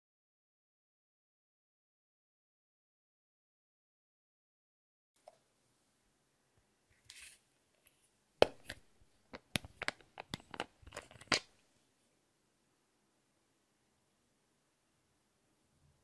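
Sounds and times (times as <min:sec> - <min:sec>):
screw cap clicking and crackling: 0:08.4 - 0:11.5.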